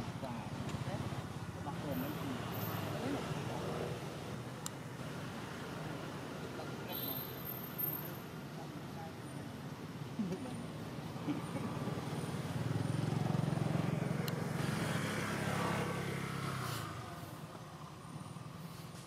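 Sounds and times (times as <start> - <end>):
vehicle engine passing by: 11.0 - 18.8.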